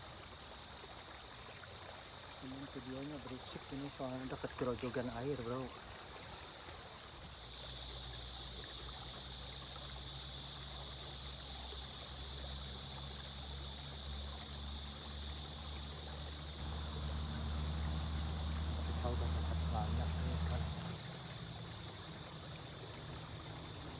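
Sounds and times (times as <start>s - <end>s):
low steady hum: 13.2s - 23.9s.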